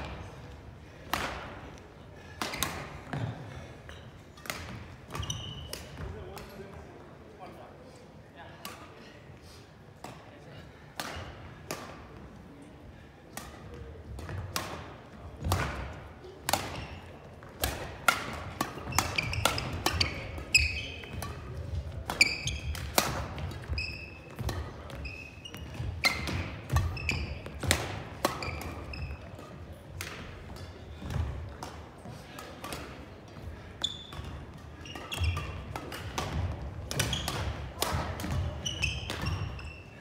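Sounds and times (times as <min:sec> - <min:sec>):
shoe squeaks: 0:05.1 - 0:06.0, 0:18.8 - 0:21.2, 0:22.1 - 0:22.8, 0:23.5 - 0:27.6, 0:28.4 - 0:29.4, 0:33.8 - 0:35.7, 0:37.0 - 0:37.5, 0:38.3 - 0:40.0
racket striking shuttlecock: 0:14.2 - 0:25.0, 0:25.6 - 0:33.0, 0:34.0 - 0:39.6.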